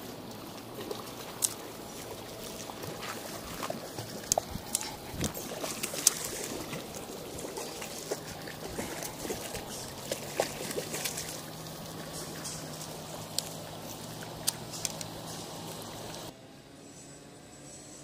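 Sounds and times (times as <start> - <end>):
water splashing: 0.0 - 16.3
fish thrashing at surface: 0.7 - 12.8.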